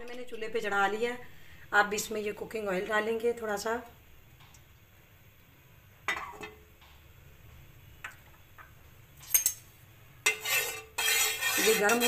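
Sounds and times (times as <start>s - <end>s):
kitchenware clinking: 6.1s - 6.6s, 9.2s - 9.7s.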